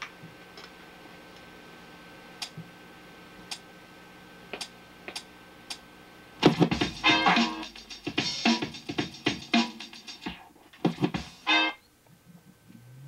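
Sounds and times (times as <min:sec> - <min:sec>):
loud music through speakers: 0:06.4 - 0:11.7
low steady hum: 0:11.5 - 0:13.0.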